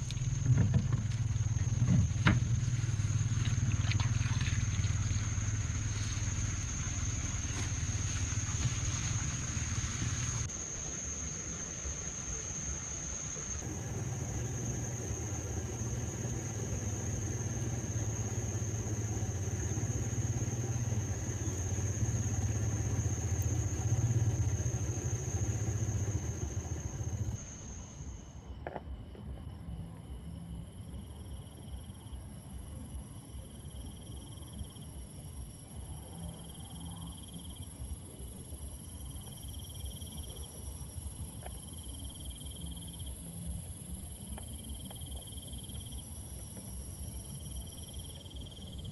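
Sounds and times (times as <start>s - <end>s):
crickets trilling: 0.0s - 48.9s
high-pitched insect whine: 0.0s - 48.9s
boat motor humming: 13.6s - 27.8s.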